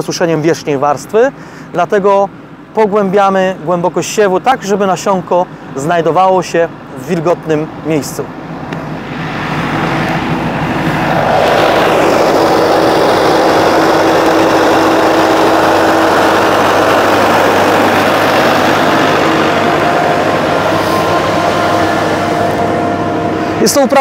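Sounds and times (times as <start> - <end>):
seeder fan tones: 0.0 - 24.0
tractor diesel engine running: 8.2 - 24.0.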